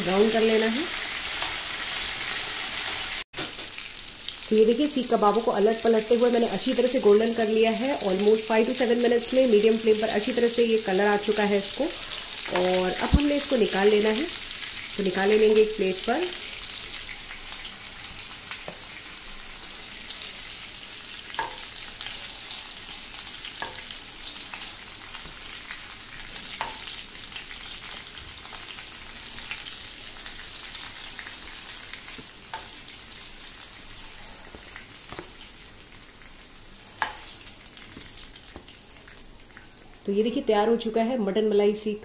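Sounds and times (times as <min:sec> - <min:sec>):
meat sizzling in oil: 0:00.0 - 0:40.3.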